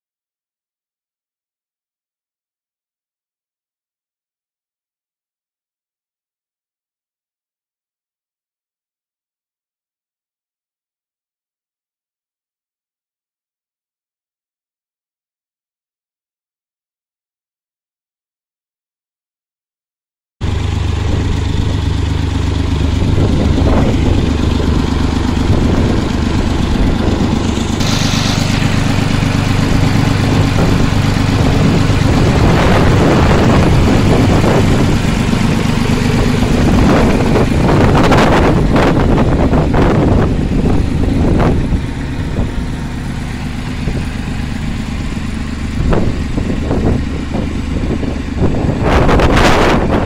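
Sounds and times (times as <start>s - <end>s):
tractor engines passing: 20.4s - 50.0s
brief hiss: 27.8s - 29.3s.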